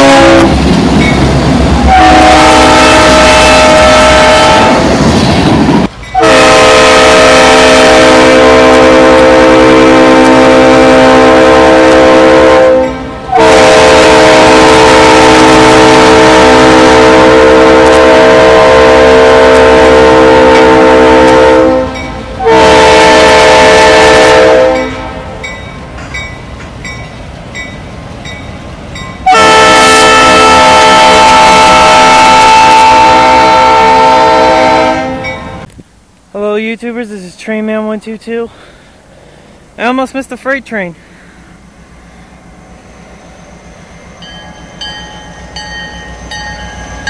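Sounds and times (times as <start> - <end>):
locomotive air horn blasts: 0.0 - 0.6, 1.8 - 4.9, 6.2 - 25.4, 29.2 - 35.5
train rumbling: 0.0 - 47.0
crossing bell dinging: 1.0 - 1.3, 24.8 - 29.3, 35.2 - 35.6, 43.0 - 47.0.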